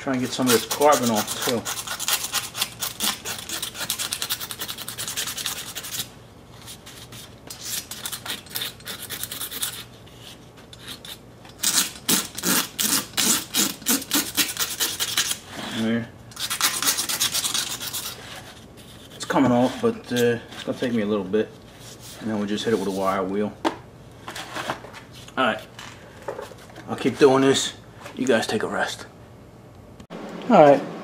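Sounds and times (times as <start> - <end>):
hand scraper rasping on metal: 0.2 - 6.0, 7.5 - 15.8.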